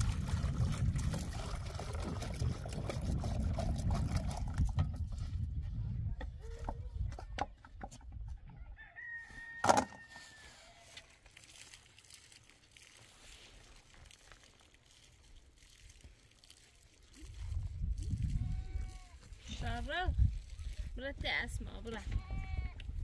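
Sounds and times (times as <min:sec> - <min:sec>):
rooster crowing: 0:08.6 - 0:11.1.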